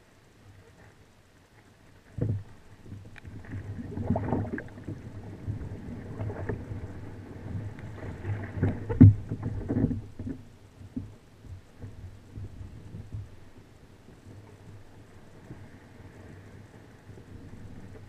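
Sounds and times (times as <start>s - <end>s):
low steady hum: 0.0s - 18.0s
paddle splashing in water: 2.0s - 11.1s.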